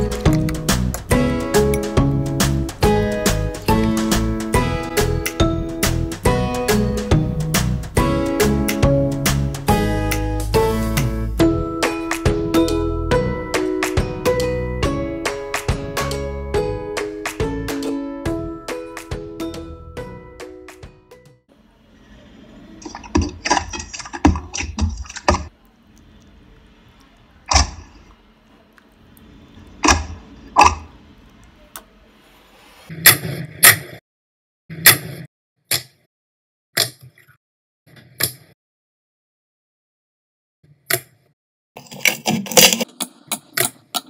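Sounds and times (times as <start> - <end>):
plucked string instrument music: 9.8 - 20.4
slime squelching and slapping: 22.8 - 25.5.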